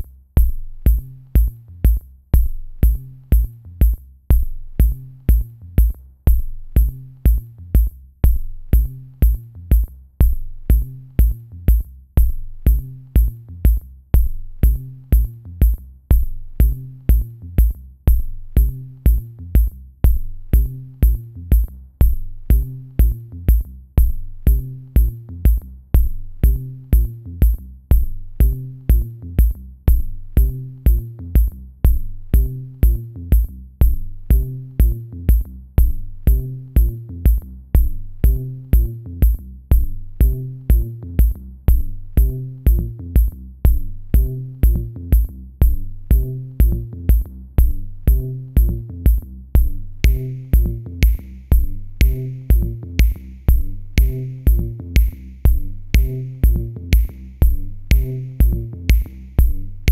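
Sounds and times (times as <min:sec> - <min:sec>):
electronic music with drum machine: 0:00.0 - 0:59.9.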